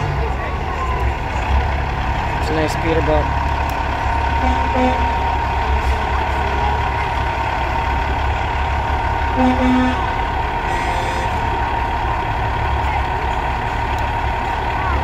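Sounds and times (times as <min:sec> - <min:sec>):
diesel truck engines running: 0:00.0 - 0:15.0
truck horn toots: 0:04.3 - 0:05.8, 0:09.3 - 0:11.6.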